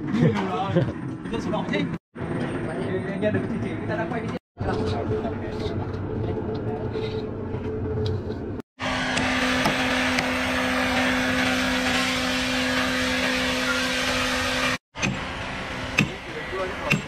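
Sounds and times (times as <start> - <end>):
sawmill machinery humming: 8.8 - 17.0.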